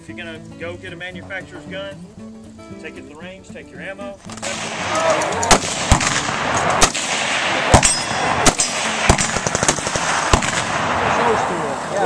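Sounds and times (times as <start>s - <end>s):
background hiss: 0.0s - 12.0s
gunshots: 4.3s - 12.0s.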